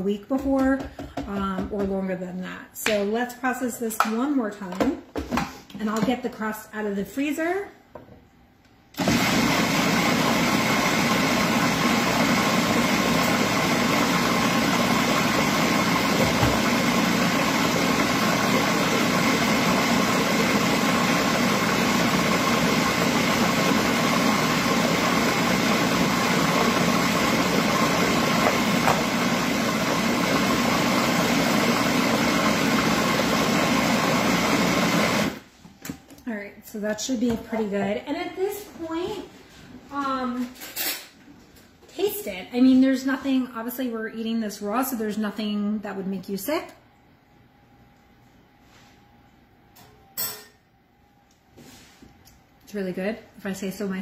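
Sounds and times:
food processor motor whirring: 9.0 - 35.4.

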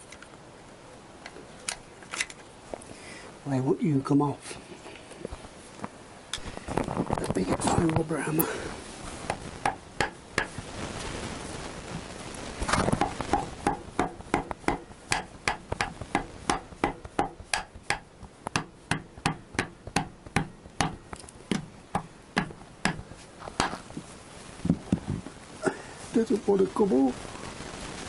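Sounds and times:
mallet tapping on engine cover: 13.6 - 23.0.

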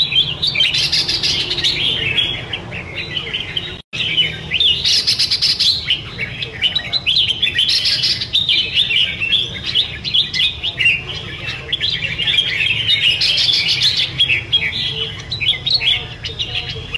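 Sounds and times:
birds singing warbling chirps: 0.0 - 16.9.

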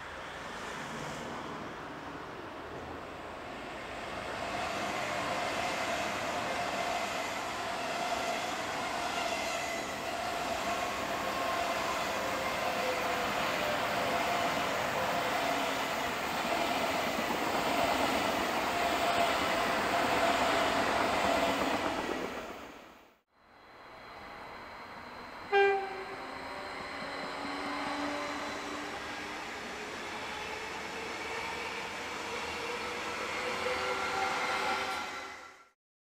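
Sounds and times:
train wheels rushing on rail: 0.0 - 23.1, 24.2 - 35.7
faint steady whine: 23.4 - 27.1.

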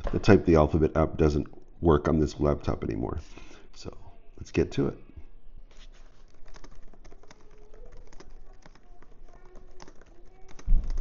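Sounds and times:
laptop keyboard typing: 5.7 - 11.0.

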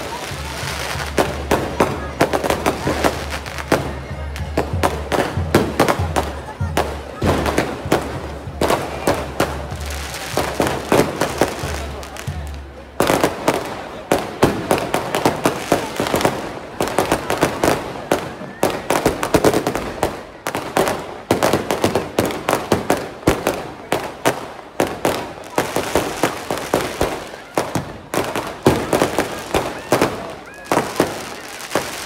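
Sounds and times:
crowd voices: 0.0 - 32.0
fireworks cracking and banging: 0.0 - 32.0.

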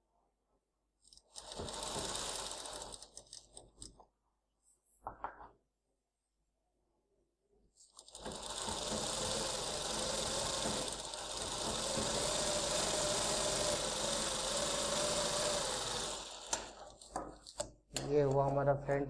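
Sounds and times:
sewing machine running: 1.2 - 3.8, 7.9 - 17.6.

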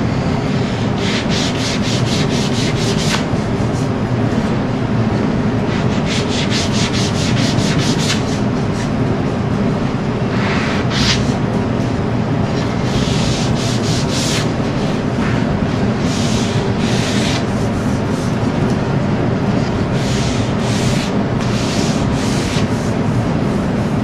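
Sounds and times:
sanding sponge strokes: 0.7 - 3.3, 5.7 - 8.4, 12.8 - 15.0, 16.0 - 18.4, 20.0 - 23.0.

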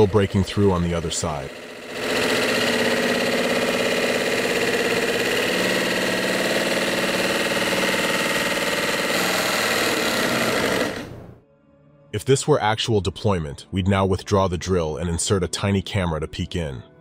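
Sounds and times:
electric drill boring into stone: 0.0 - 11.3.

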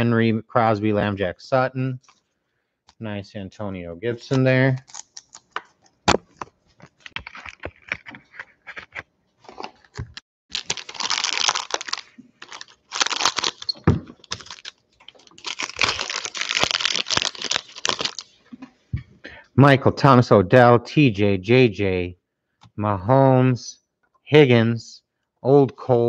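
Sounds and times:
foil wrapper crinkling and tearing: 4.3 - 18.3.

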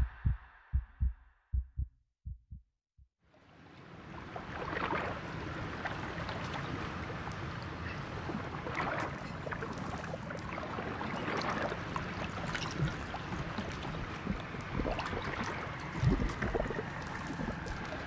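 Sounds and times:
waves washing against shore: 8.2 - 18.0
small crackles and clicks: 15.7 - 18.0.

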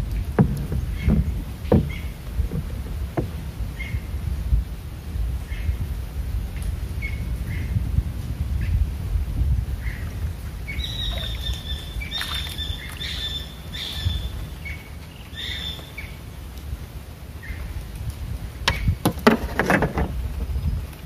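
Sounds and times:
splashing and knocking: 0.0 - 3.6, 10.9 - 14.2, 18.7 - 20.5
wind rumble on microphone: 0.0 - 21.0
bird chirps: 10.7 - 16.2.

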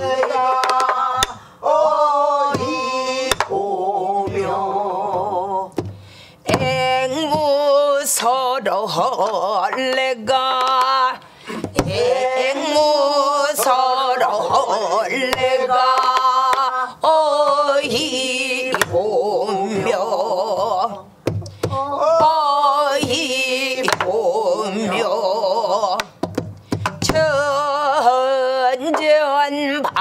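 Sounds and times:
person singing with wide vibrato: 0.0 - 30.0
barrel drum strokes: 2.5 - 7.6.

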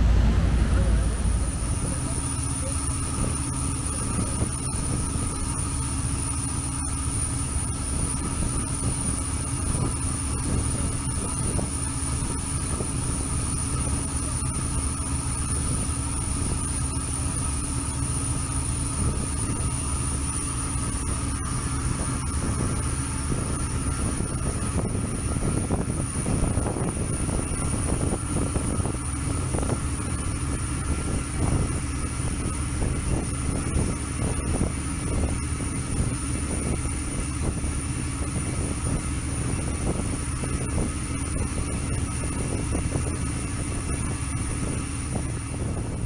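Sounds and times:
boat engines droning: 0.0 - 46.0
thin high whine: 0.0 - 46.0.

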